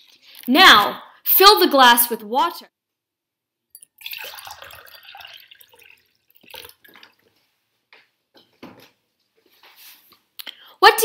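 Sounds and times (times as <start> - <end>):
water dripping: 3.7 - 7.5
water pouring into a glass: 3.8 - 7.3.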